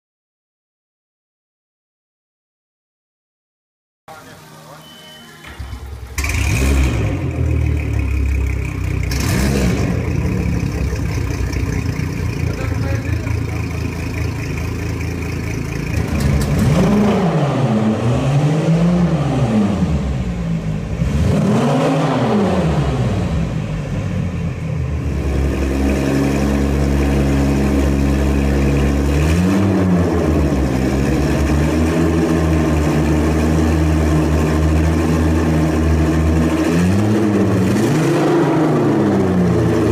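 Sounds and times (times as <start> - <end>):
outboard motors idling and revving: 5.5 - 17.3, 22.8 - 39.9.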